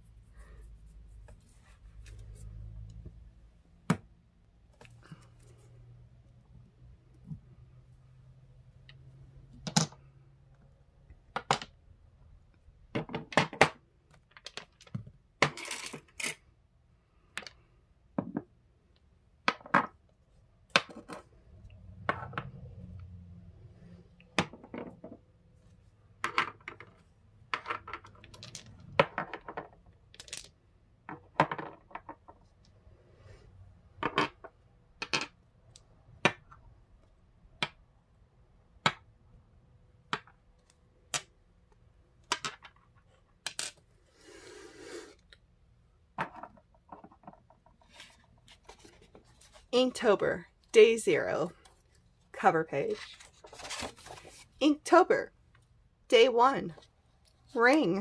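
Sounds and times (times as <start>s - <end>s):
stones clinking on tabletop: 46.2s - 47.5s.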